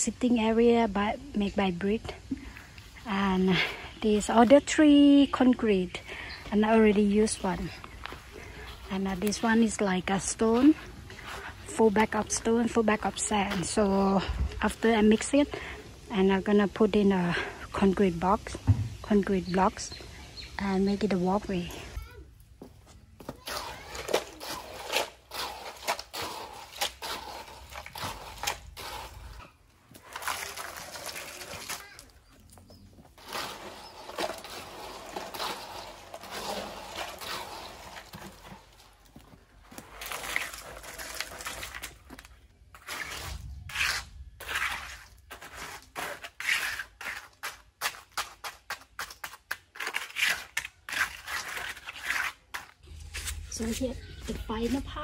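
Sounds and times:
hand tool scraping wet concrete: 6.6s - 15.8s, 23.2s - 54.9s.

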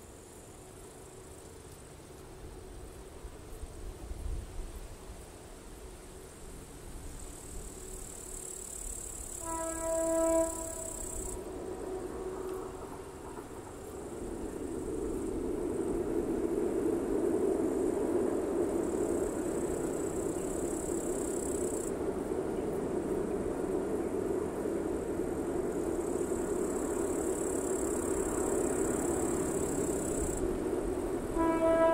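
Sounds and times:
diesel freight train rumbling: 0.0s - 31.9s
insects buzzing: 4.6s - 31.9s
horn blast: 9.4s - 11.3s, 31.3s - 31.9s.

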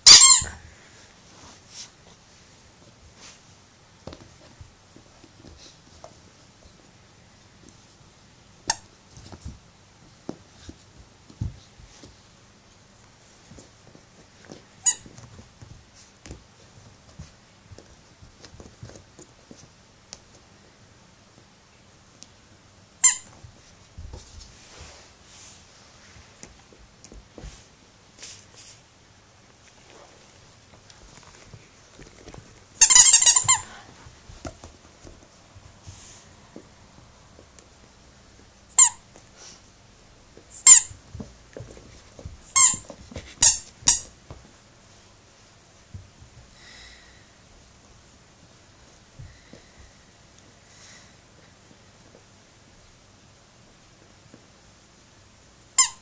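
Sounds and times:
squeaky toy squeak: 0.0s - 0.6s, 14.8s - 15.0s, 23.0s - 23.3s, 32.8s - 33.6s, 38.8s - 39.0s, 40.6s - 40.9s, 43.4s - 44.1s, 55.8s - 56.0s
faint scuffling: 0.1s - 54.8s.

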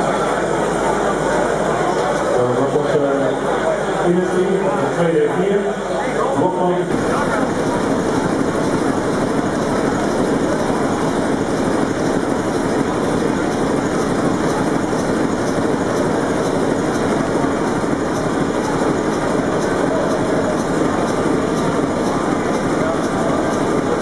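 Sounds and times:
marine diesel engine clattering: 6.9s - 24.0s.

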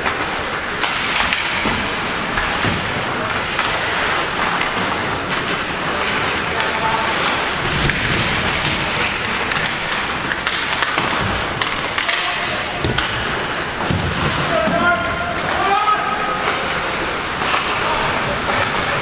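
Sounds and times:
hockey sticks and puck clacking: 0.0s - 19.0s.

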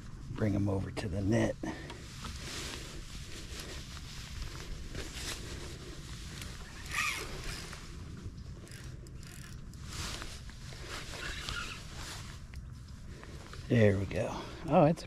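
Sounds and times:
fishing reel cranking: 6.8s - 7.8s, 8.6s - 9.9s.

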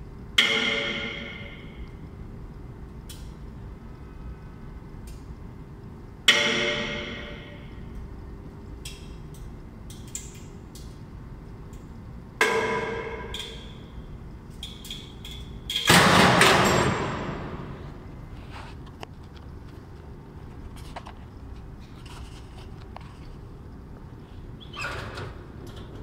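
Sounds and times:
steady low hum: 0.0s - 26.0s
sharp metallic bangs with ringing: 0.4s - 1.8s, 6.3s - 7.8s, 12.4s - 13.8s, 15.7s - 17.9s.

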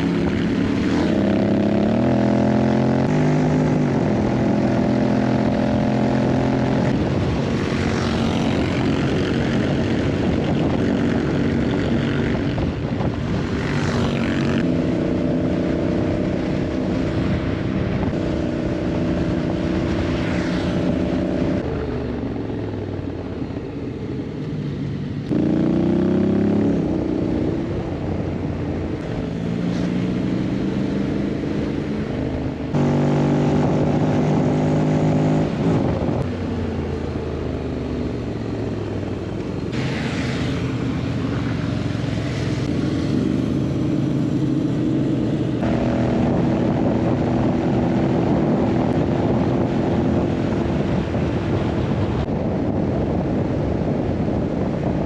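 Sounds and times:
motorcycle engine accelerating: 0.0s - 55.0s
road and wind noise: 0.0s - 55.0s.

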